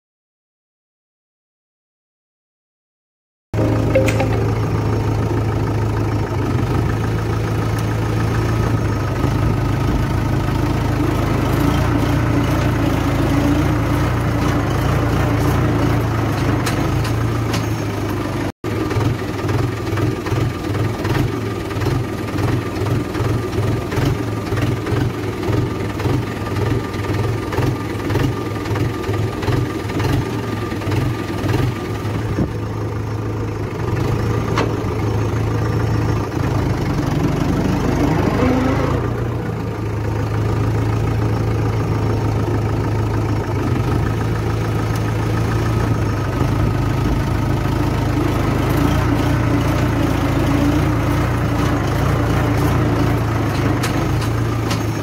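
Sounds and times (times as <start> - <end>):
tractor diesel engine running: 3.6 - 55.0.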